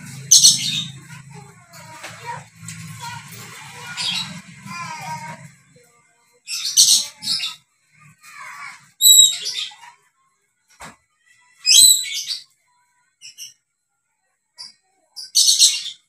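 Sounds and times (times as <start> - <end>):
parrot screeching calls: 8.4 - 9.8.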